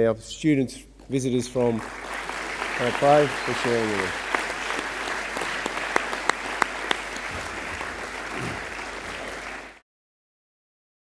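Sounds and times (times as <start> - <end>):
audience applauding: 1.6 - 9.8.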